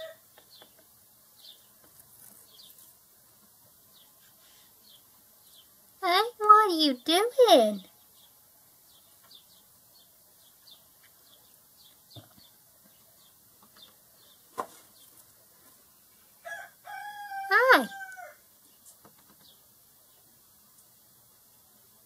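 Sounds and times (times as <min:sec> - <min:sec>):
sparrows chirping: 0:00.4 - 0:02.9, 0:03.8 - 0:15.3, 0:18.6 - 0:20.4.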